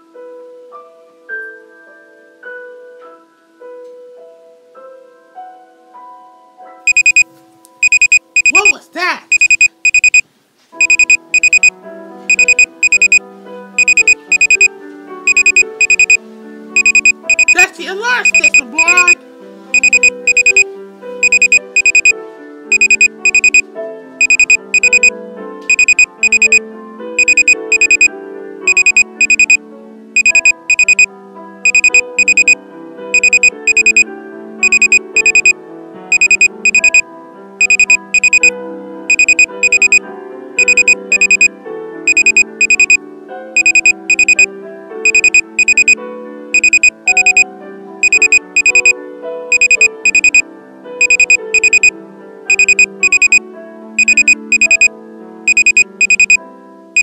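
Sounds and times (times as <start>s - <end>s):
electronic alarm beeping: 6.9s - 10.2s, 10.8s - 11.7s, 12.3s - 13.2s, 13.8s - 14.7s, 15.3s - 16.2s, 16.8s - 26.6s, 27.2s - 29.6s, 30.2s - 32.6s, 33.2s - 37.0s, 37.6s - 38.5s, 39.1s - 40.0s, 40.6s - 41.5s, 42.1s - 44.5s, 45.1s - 46.0s, 46.6s - 50.4s, 51.0s - 51.9s, 52.5s - 53.4s, 54.0s - 54.9s, 55.5s - 56.4s
background music: 10.8s - 57.0s.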